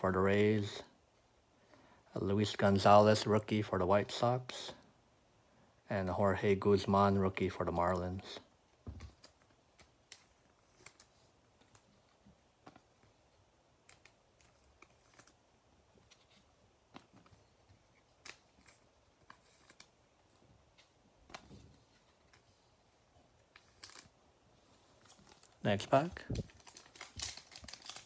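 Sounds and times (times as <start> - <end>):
trading cards clicking and rustling: 16.0 - 20.0, 25.0 - 28.0.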